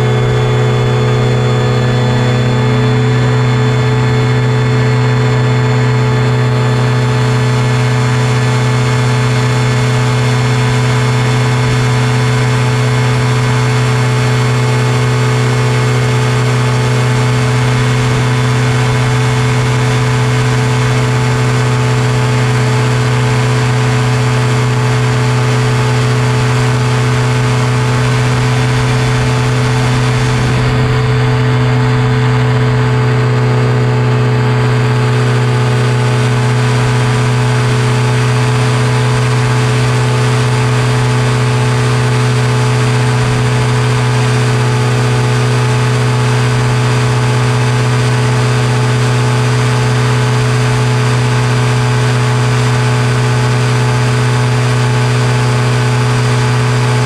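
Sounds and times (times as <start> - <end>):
engine and propeller droning: 0.0 - 57.0
airflow noise: 26.2 - 35.0.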